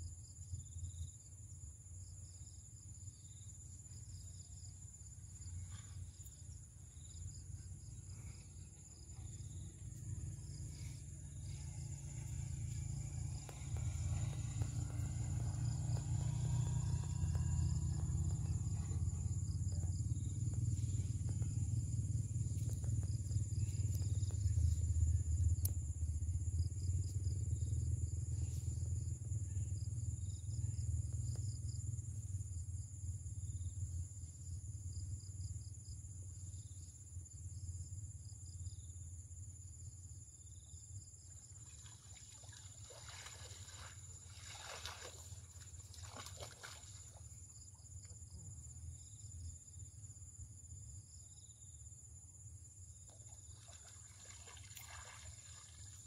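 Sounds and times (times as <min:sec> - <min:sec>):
insects chirping in trills: 0:00.0 - 0:56.0
low rumble: 0:06.9 - 0:31.6.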